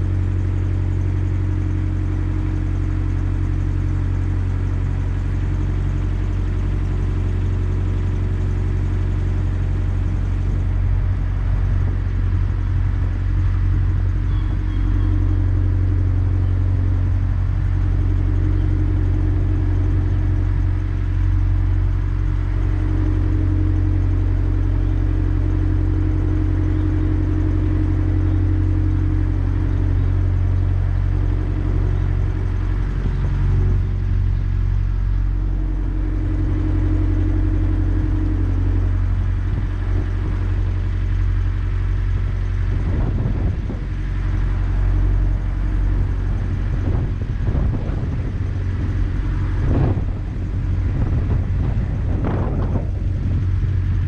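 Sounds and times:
boat diesel engine droning: 0:00.0 - 0:54.0.

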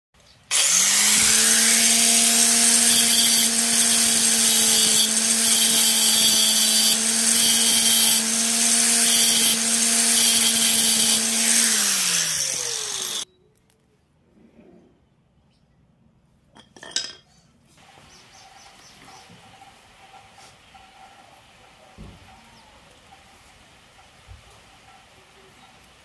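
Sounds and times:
angle grinder cutting steel: 0:00.5 - 0:13.2
grinder motor winding down: 0:00.5 - 0:13.2.

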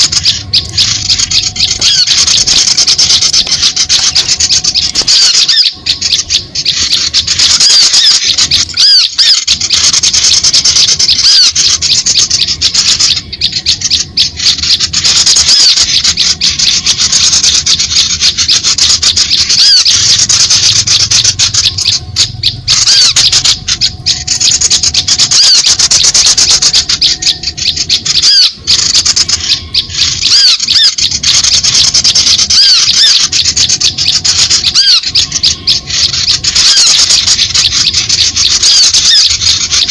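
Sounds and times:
small birds chirping: 0:00.0 - 0:39.9.

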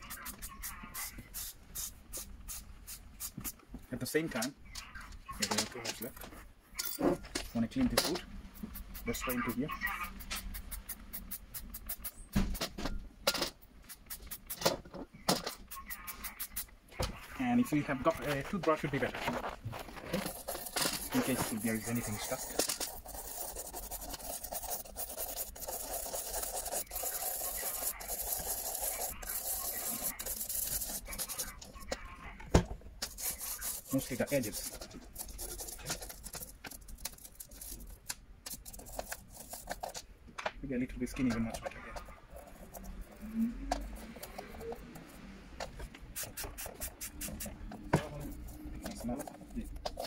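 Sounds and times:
toothbrush scrubbing keyboard: 0:17.7 - 0:32.2, 0:33.0 - 0:40.0, 0:41.1 - 0:50.0.

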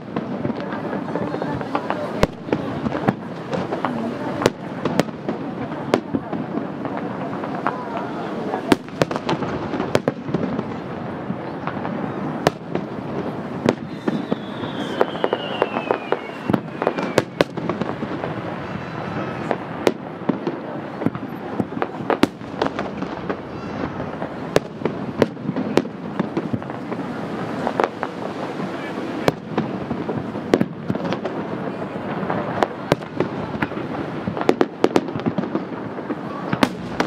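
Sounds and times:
crowd murmuring: 0:00.0 - 0:37.0
firework shells bursting: 0:11.7 - 0:18.6, 0:32.9 - 0:37.0
descending firework whistle: 0:13.6 - 0:20.0.

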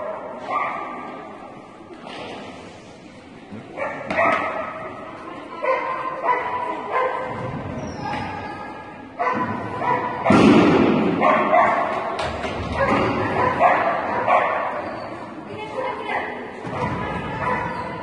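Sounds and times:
dog barking excitedly: 0:05.6 - 0:07.4, 0:09.2 - 0:10.3, 0:11.2 - 0:12.0, 0:12.7 - 0:14.9, 0:17.4 - 0:18.0.

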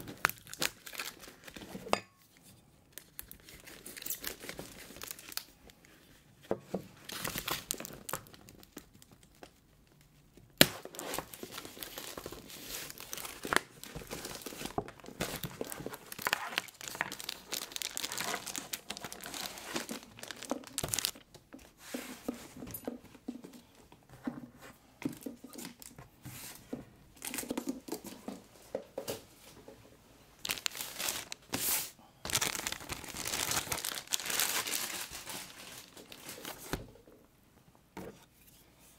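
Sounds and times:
plastic film crinkling: 0:00.0 - 0:01.8, 0:02.9 - 0:05.8, 0:07.0 - 0:10.0, 0:10.6 - 0:21.3, 0:30.4 - 0:36.9
cardboard rustling and tearing: 0:10.6 - 0:21.2, 0:30.4 - 0:36.9.

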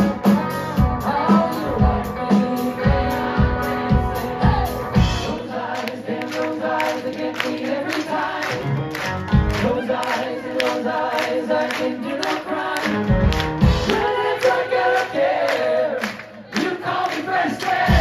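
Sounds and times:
drums: 0:00.0 - 0:05.8, 0:08.8 - 0:09.8, 0:10.7 - 0:18.0
voices singing: 0:00.9 - 0:08.7, 0:09.4 - 0:18.0
handclap beat: 0:05.2 - 0:18.0.

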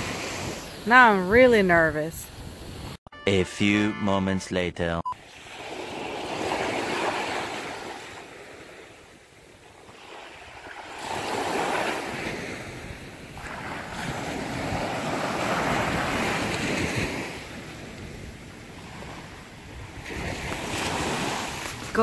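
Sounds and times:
wind: 0:00.0 - 0:03.0, 0:05.1 - 0:22.0
sea waves washing against jetty: 0:05.2 - 0:22.0.

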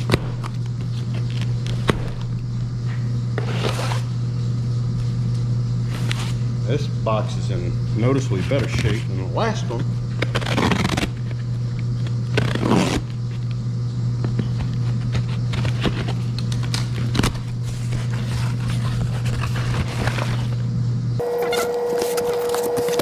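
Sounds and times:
steady low hum: 0:00.0 - 0:23.0
knife slitting packing tape: 0:10.2 - 0:11.3, 0:12.3 - 0:13.1
cardboard flaps rustling: 0:14.4 - 0:20.6.

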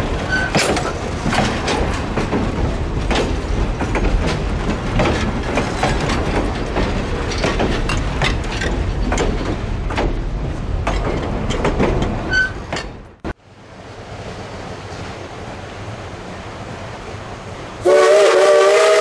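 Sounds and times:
train wheels clicking over rail joints: 0:00.0 - 0:13.4
high wheel squeal: 0:00.3 - 0:00.6, 0:12.3 - 0:12.7.

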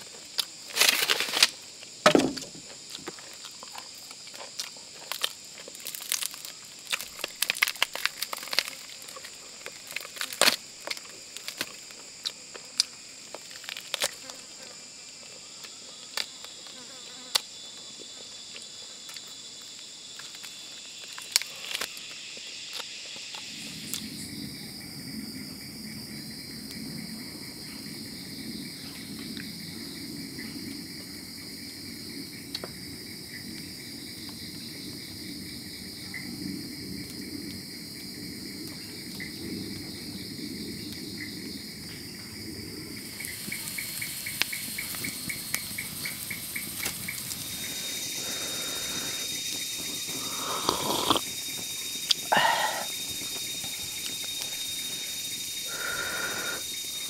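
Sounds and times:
forest insects chorus: 0:00.0 - 0:57.0
meat being chewed crunchily: 0:02.7 - 0:14.4.

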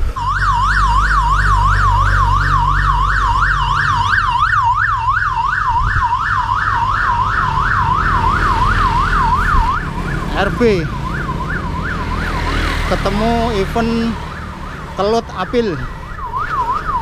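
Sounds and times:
electronic siren yelping: 0:00.0 - 0:17.0
wind rumble on microphone: 0:05.5 - 0:10.2.

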